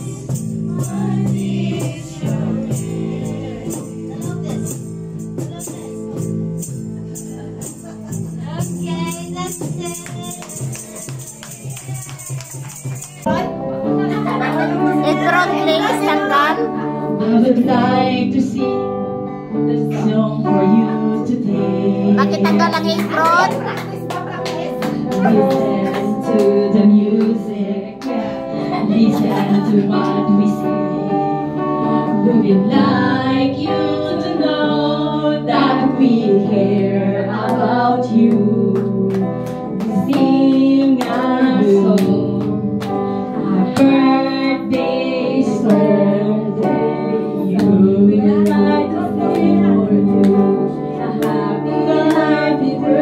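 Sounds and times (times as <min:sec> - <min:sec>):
women singing into microphones: 0:00.0 - 0:04.1, 0:15.5 - 0:19.0, 0:19.6 - 0:23.8, 0:24.7 - 0:53.0
acoustic guitar: 0:00.0 - 0:53.0.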